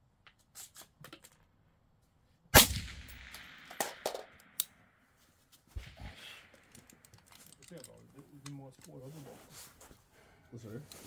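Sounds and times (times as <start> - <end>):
rifle shot with echo: 2.6 - 4.6
light clinks and knocks: 6.5 - 9.0.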